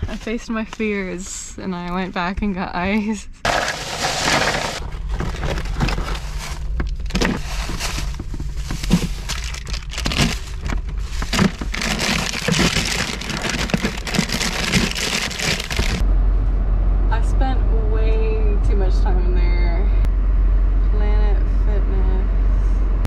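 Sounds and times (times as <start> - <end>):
low hum: 0.0 - 23.0
ice cubes crunching in plastic bag: 3.5 - 16.0.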